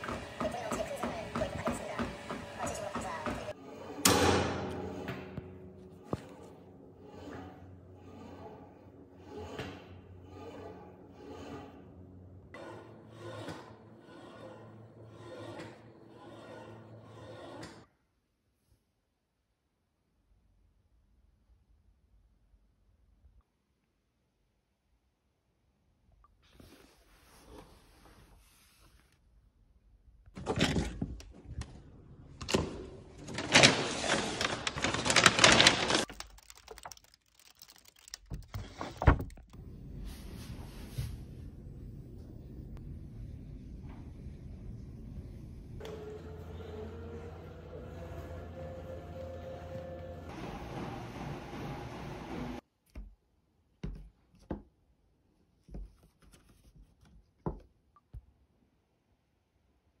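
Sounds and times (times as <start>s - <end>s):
plastic bags crinkling: 33.3s - 38.8s.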